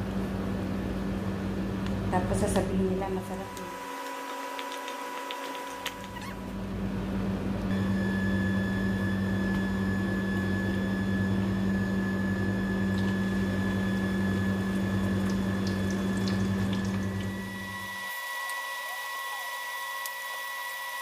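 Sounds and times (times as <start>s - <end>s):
small electric motor humming: 3.4s - 6.5s, 17.0s - 21.0s.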